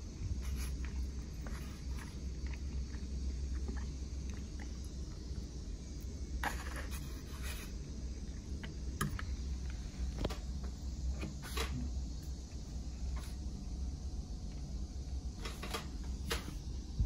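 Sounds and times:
steady low hum: 0:00.0 - 0:17.0
fork scraping plastic plate: 0:06.4 - 0:07.7.

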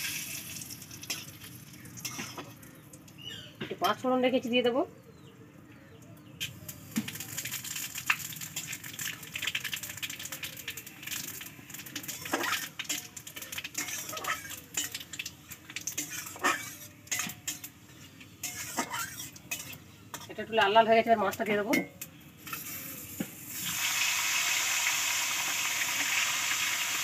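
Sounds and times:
seeds spluttering in hot oil: 0:00.0 - 0:03.5, 0:06.4 - 0:27.0
metal spatula scraping a pan: 0:02.0 - 0:02.6, 0:12.0 - 0:20.8.

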